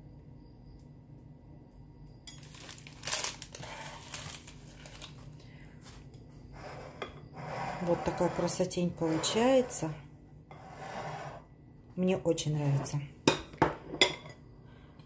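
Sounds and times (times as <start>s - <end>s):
faint room hum: 0.0s - 15.0s
crinkling and rustling handling: 2.3s - 6.3s.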